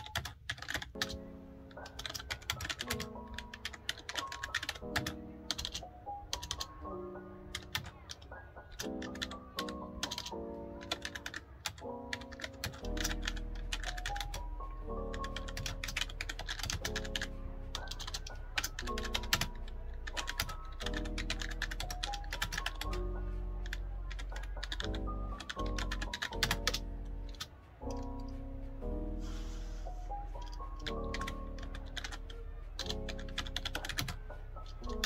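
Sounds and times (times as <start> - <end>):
fast typing on keyboard: 0.0 - 6.9, 7.5 - 28.4, 30.3 - 35.0
background music with held notes: 0.0 - 35.0.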